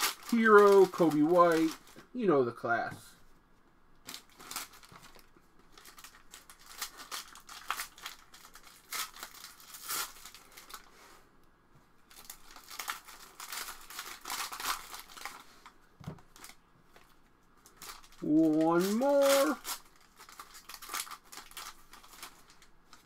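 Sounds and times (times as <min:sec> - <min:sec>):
cards being handled: 0:00.0 - 0:02.1, 0:17.8 - 0:22.4
wrappers crinkling and tearing: 0:00.0 - 0:02.1, 0:04.0 - 0:10.9, 0:12.1 - 0:23.0.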